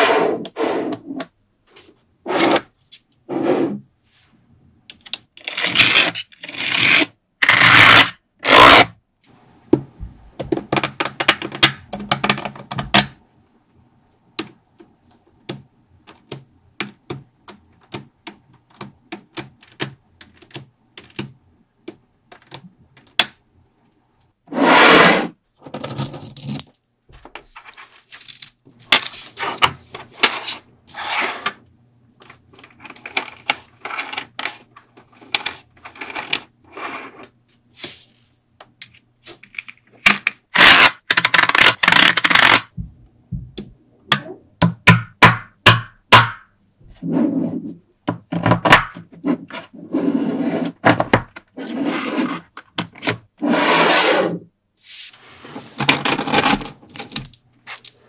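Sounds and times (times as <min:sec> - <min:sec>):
magnetic balls rattling and scraping: 0:25.6 - 0:31.2.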